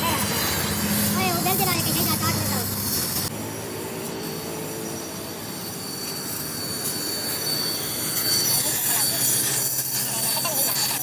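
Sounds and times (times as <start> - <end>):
high whistle: 4.2 - 10.1.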